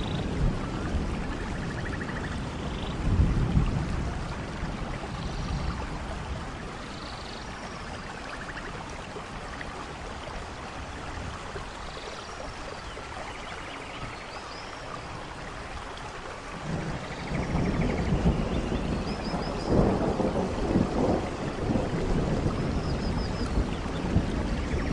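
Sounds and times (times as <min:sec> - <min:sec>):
low thunder rumble: 0:00.0 - 0:06.9, 0:16.6 - 0:24.9
steady rain: 0:00.0 - 0:24.9.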